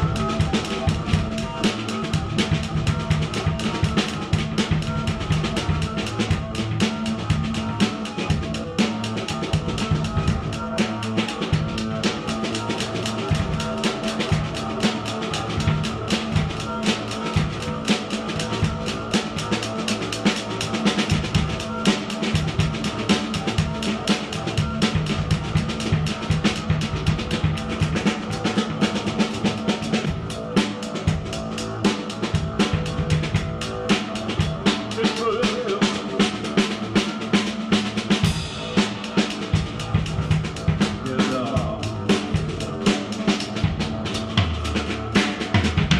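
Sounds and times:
drums playing busy beat: 0:00.0 - 0:45.9.

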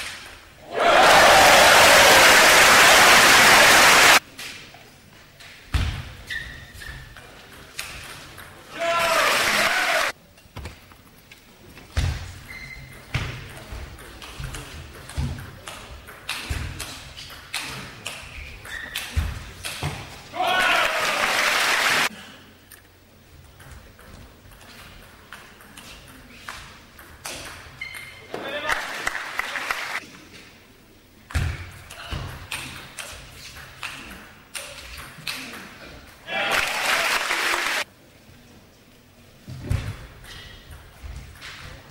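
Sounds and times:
ping pong ball hitting bats and table: 0:12.8 - 0:20.0.

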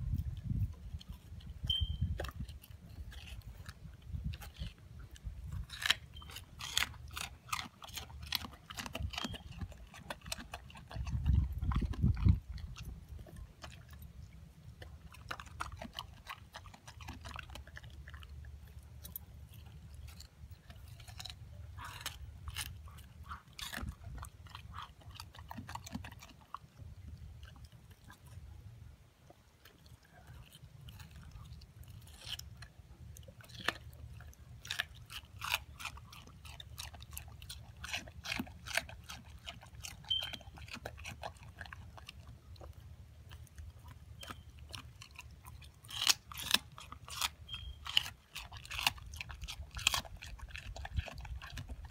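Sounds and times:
dog chewing rind: 0:00.0 - 0:51.9.

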